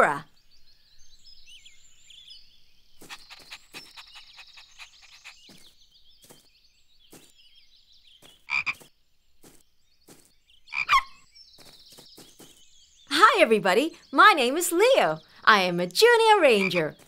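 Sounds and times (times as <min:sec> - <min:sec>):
bird chirps and trills: 0:00.0 - 0:17.0
cartoon frog croaking: 0:10.7 - 0:11.2.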